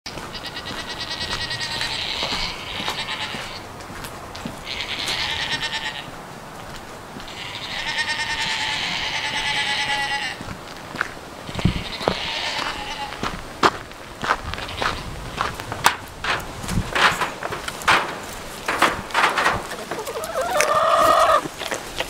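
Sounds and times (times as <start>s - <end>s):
goat bleating: 0.1s - 3.6s, 4.6s - 6.1s, 7.2s - 10.4s, 11.5s - 13.2s, 14.6s - 15.1s, 19.4s - 21.6s.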